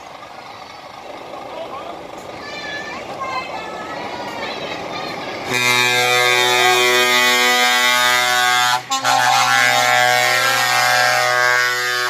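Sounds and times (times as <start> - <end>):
truck air horn blast: 5.4 - 12.0.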